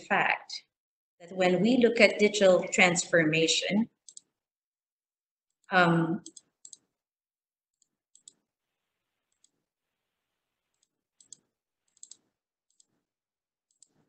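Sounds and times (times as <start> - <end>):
person speaking: 5.7 - 6.3.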